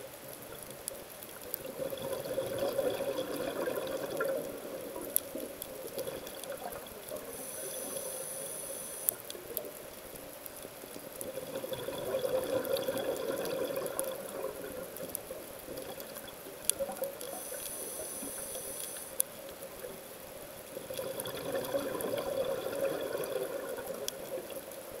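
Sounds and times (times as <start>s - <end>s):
exhaled bubbles rushing: 1.7s - 5.0s, 11.4s - 14.9s, 20.9s - 24.1s
regulator hissing inhale: 7.2s - 9.3s, 17.2s - 19.2s.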